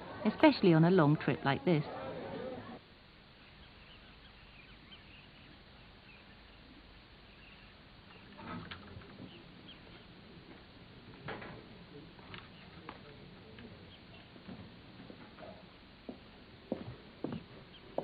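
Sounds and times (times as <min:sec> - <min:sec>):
faint outdoor ambience: 0:00.0 - 0:18.0
high bird chirps: 0:03.4 - 0:06.7.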